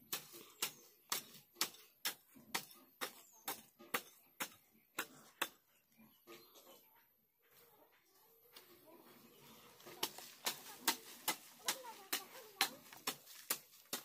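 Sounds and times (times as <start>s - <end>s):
hand tool chopping into ground: 9.9s - 14.0s.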